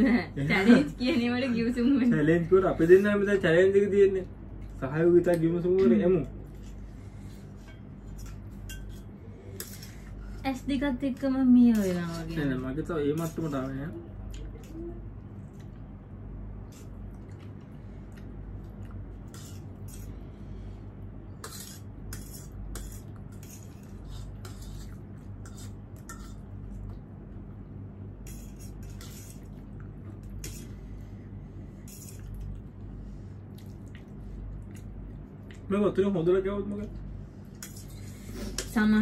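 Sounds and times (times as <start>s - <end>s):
steady low hum: 0.0s - 39.0s
utensils clinking against a bowl: 5.8s - 10.2s, 11.1s - 14.8s, 21.4s - 26.5s.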